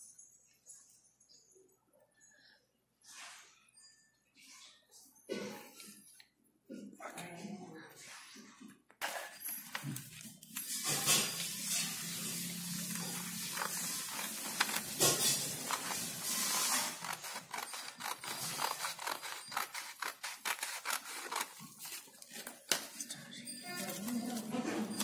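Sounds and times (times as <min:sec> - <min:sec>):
paper rustling: 0:09.0 - 0:25.0
scissors snipping paper: 0:09.7 - 0:25.0.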